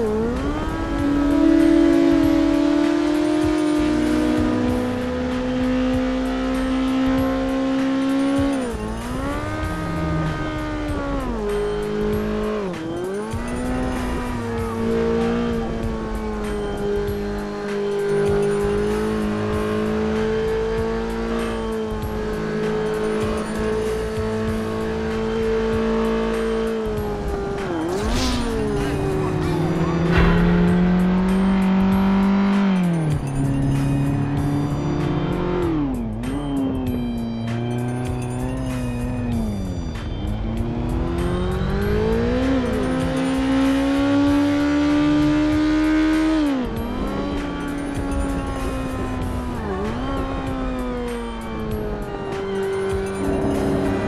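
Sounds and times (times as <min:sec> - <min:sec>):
motorcycle engine running: 0:46.7 - 0:54.0.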